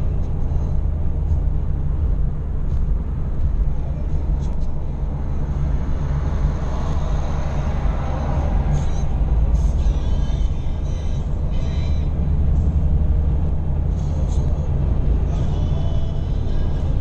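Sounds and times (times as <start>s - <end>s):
car engine and tyre rumble: 0.0s - 17.0s.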